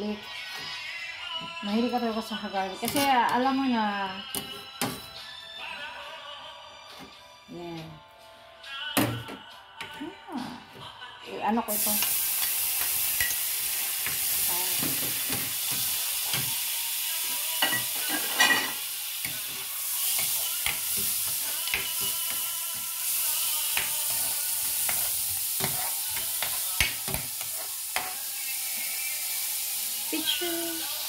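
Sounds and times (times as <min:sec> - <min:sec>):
metal spatula scraping a pan: 0:02.8 - 0:03.3, 0:17.6 - 0:28.5
oil sizzling in a pan: 0:11.7 - 0:31.0.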